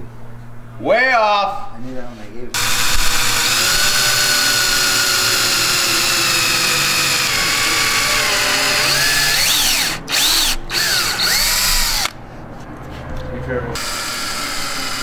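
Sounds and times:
power drill boring into acrylic: 0:02.6 - 0:12.1, 0:13.8 - 0:15.0.

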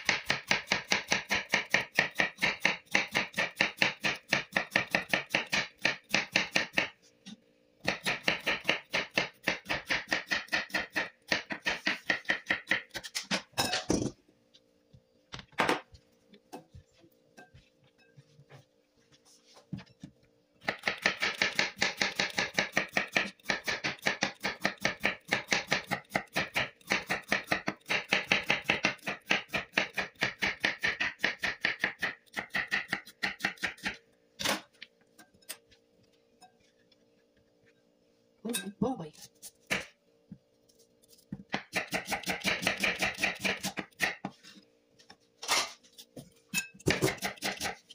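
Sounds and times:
knife chopping on cutting board: 0:00.0 - 0:07.0, 0:07.8 - 0:13.4, 0:20.6 - 0:34.6, 0:39.4 - 0:40.0, 0:41.1 - 0:44.4, 0:46.9 - 0:47.9.

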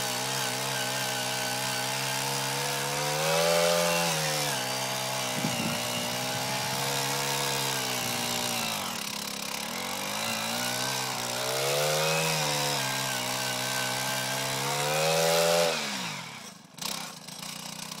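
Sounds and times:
earth auger engine drilling: 0:00.0 - 0:18.0.

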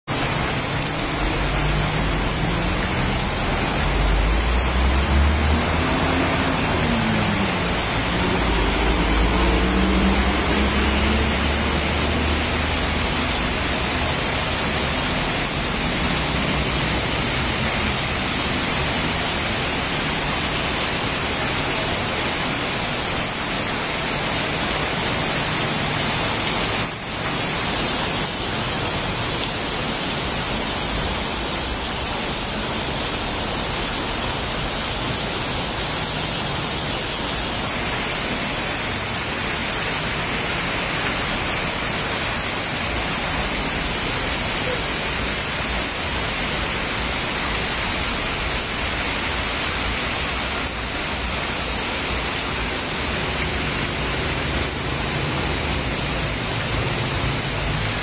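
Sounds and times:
heavy rain on street: 0:00.0 - 0:58.0
vehicle engine passing: 0:01.4 - 0:13.2.

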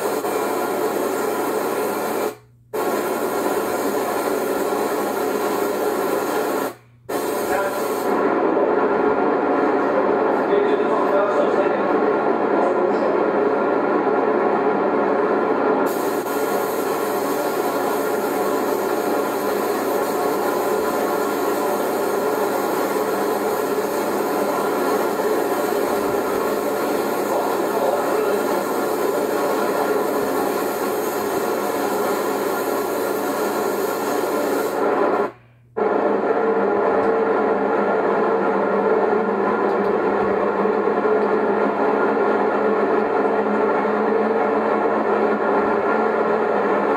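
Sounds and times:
paint spray gun hissing: 0:00.0 - 0:08.2, 0:15.9 - 0:35.3
mechanical hum of equipment: 0:00.0 - 0:46.9.

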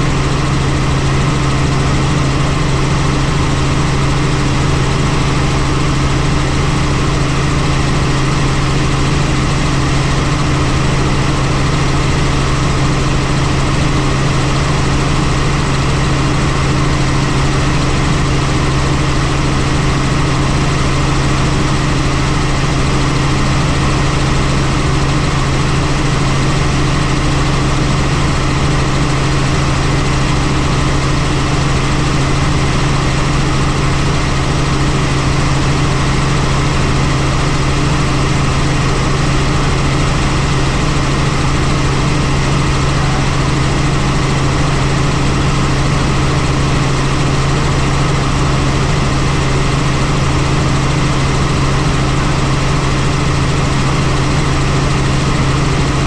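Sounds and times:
helicopter engine and rotors: 0:00.0 - 0:56.0.

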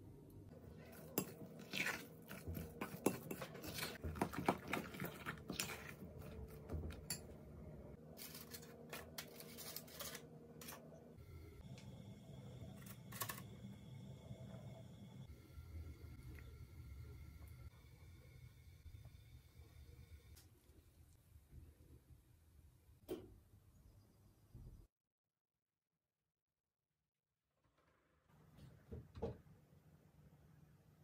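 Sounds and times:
metal spoon scraping glass bowl: 0:00.9 - 0:04.0
paper cases in muffin tin: 0:08.1 - 0:10.9.

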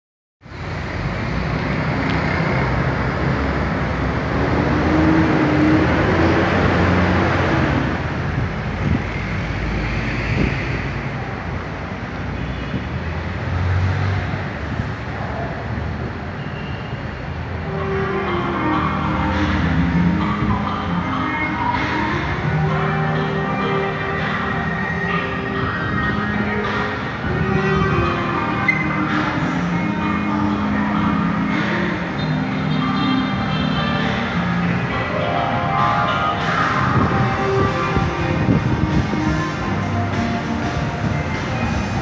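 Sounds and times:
metro station rumbling: 0:00.4 - 0:42.0.

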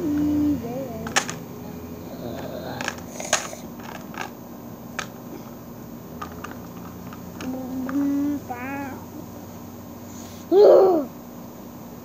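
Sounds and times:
steady low hum: 0:00.0 - 0:12.0
plastic clicks and knocks: 0:01.0 - 0:01.4.

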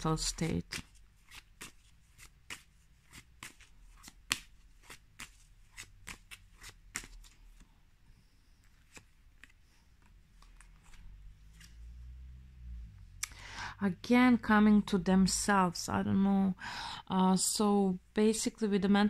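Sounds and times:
cards being shuffled: 0:00.2 - 0:07.7, 0:08.7 - 0:11.8.

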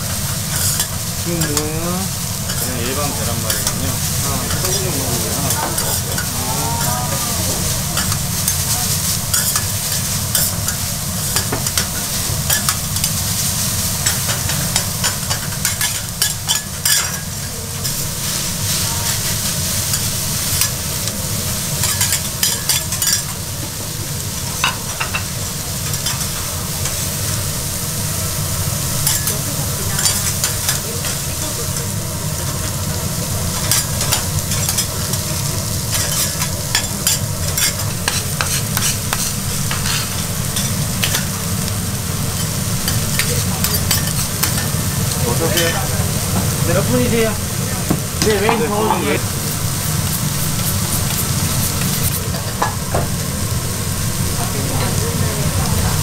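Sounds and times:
bean sprouts sizzling on griddle: 0:00.0 - 0:56.0
metal spatulas scraping griddle: 0:00.5 - 0:01.6, 0:35.9 - 0:41.3.

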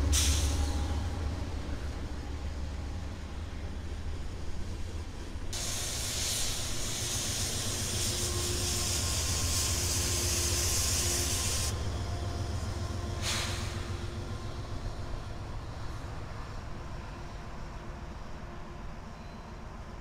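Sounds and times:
loud hiss: 0:00.1 - 0:00.6, 0:05.6 - 0:11.8, 0:13.2 - 0:13.9.

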